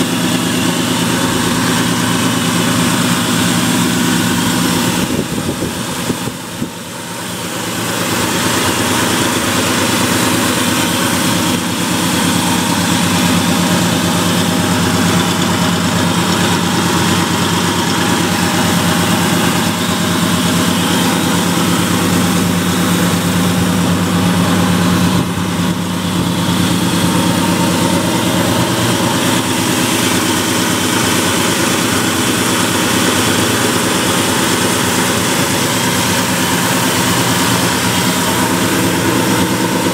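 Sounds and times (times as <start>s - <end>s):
engine idling: 0.0s - 39.9s.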